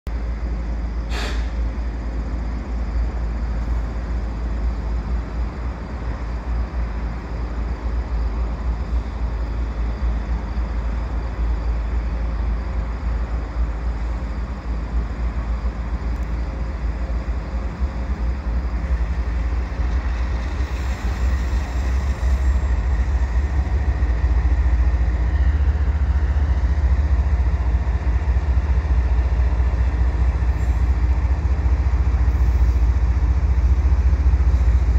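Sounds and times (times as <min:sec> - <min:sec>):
diesel locomotive engine drone: 0:00.0 - 0:34.9
short sharp click: 0:01.1 - 0:01.5.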